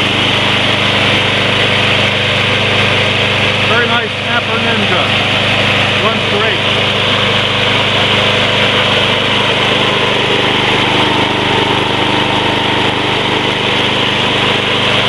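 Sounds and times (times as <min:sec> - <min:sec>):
lawn mower engine running: 0:00.0 - 0:15.0.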